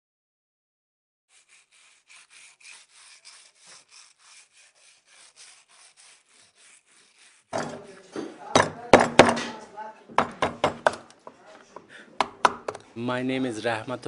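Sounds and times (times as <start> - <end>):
hand saw cutting wood: 1.3 - 8.0
loud knock and clatter: 8.6 - 9.6.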